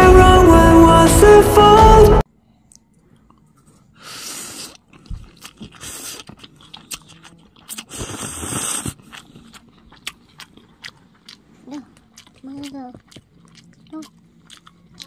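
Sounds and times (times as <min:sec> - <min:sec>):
chewing: 0:02.7 - 0:15.0.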